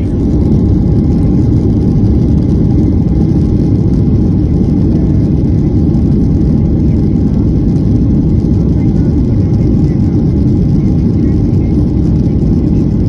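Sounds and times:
airliner cabin low rumble: 0.0 - 13.0.

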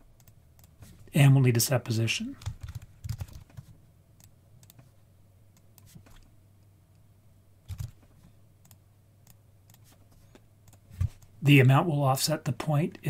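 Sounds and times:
keyboard keystrokes: 2.4 - 3.6.

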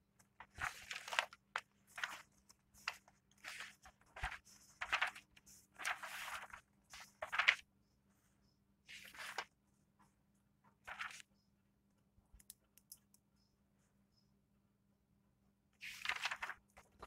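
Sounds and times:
rustling handling noises: 0.2 - 7.6, 15.8 - 17.0.

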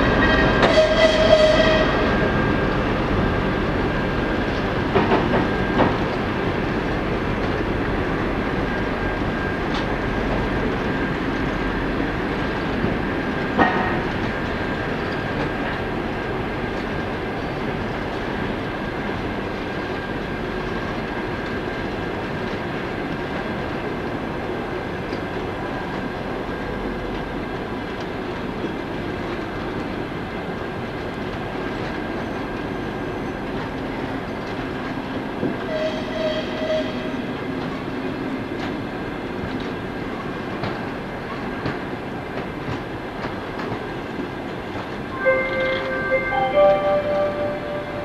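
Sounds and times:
train wheels rumbling on rails: 0.0 - 48.0
high squeal: 45.2 - 48.0.

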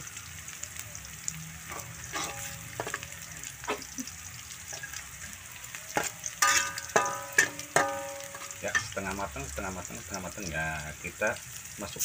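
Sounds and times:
food sizzling in oil: 0.0 - 12.0
spatula clanging on wok: 1.7 - 3.9, 5.9 - 9.2
metal spatula scraping wok: 1.7 - 4.0, 5.9 - 9.1.

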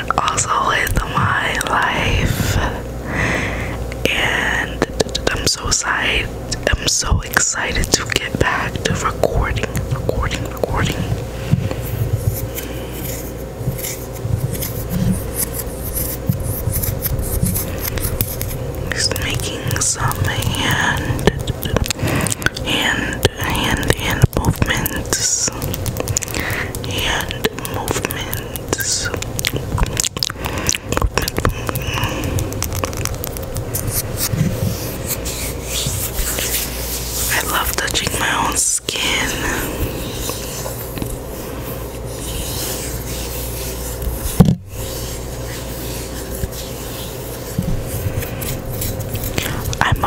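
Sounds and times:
hands rubbing together: 11.8 - 22.4, 24.6 - 50.0.

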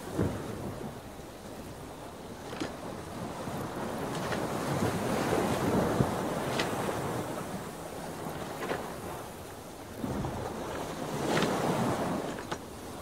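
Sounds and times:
ocean waves: 0.0 - 13.0
wind: 0.0 - 13.0.

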